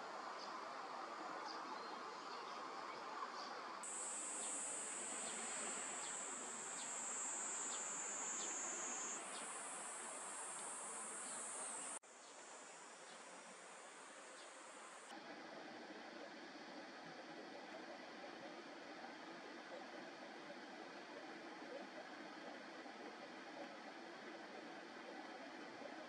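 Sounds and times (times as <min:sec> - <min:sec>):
high-pitched insect drone: 0:03.8 - 0:12.0.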